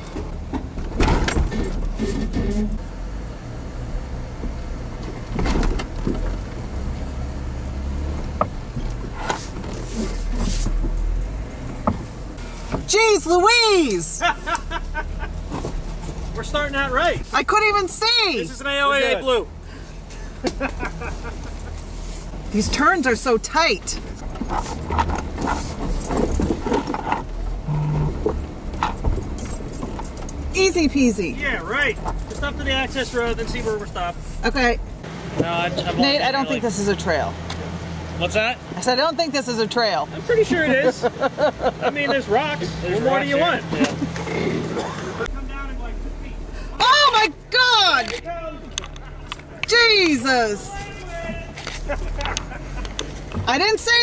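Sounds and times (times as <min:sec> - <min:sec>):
engine running low: 0:00.0 - 0:54.0
light clicks and rattles: 0:51.3 - 0:53.7.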